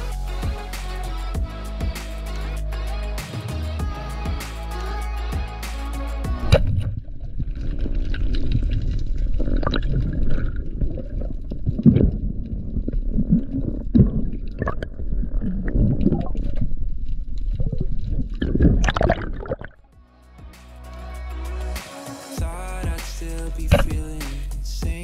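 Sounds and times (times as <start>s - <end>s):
muffled underwater wash: 6.4s - 19.9s.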